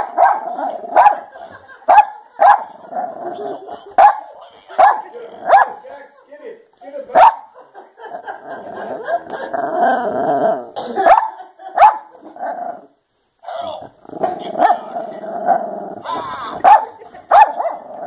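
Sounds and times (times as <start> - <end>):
dog barking sharply: 0.0 - 0.4, 7.2 - 7.5, 16.6 - 17.9
dog growling: 0.0 - 1.4, 2.6 - 3.9, 4.9 - 5.8, 8.1 - 10.8, 12.1 - 13.0, 13.6 - 16.7, 17.6 - 18.0.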